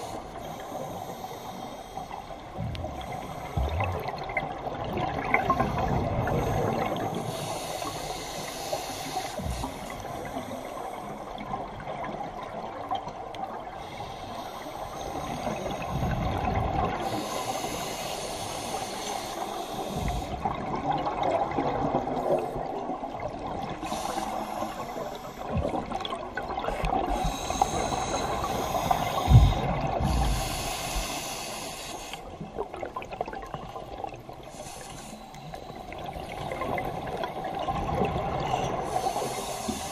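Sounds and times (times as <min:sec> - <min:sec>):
exhaled bubbles gurgling: 0:02.4 - 0:08.2, 0:15.1 - 0:39.9
regulator hissing inhalations: 0:05.8 - 0:11.2, 0:17.0 - 0:20.4, 0:23.8 - 0:25.6, 0:27.1 - 0:32.3, 0:34.4 - 0:36.0, 0:38.8 - 0:39.9.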